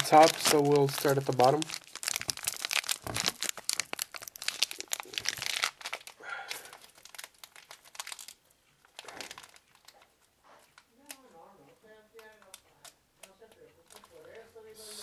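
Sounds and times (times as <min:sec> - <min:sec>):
plastic wrapper tearing and crinkling: 0:00.0 - 0:10.1.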